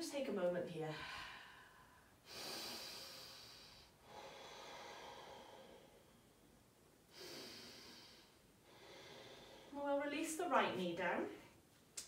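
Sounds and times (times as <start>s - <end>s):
person breathing slowly: 0.9s - 6.5s, 7.1s - 9.8s.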